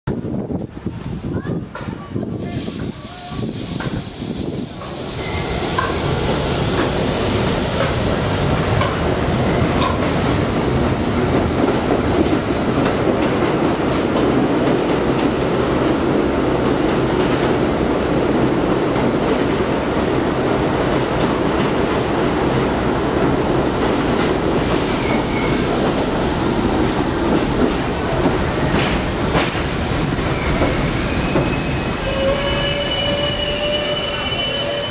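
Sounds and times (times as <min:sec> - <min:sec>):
train wheels rumbling on rails: 0:00.1 - 0:34.9
train wheels squealing: 0:02.0 - 0:04.1, 0:05.0 - 0:06.0, 0:09.5 - 0:10.5, 0:25.0 - 0:25.6, 0:30.2 - 0:34.9.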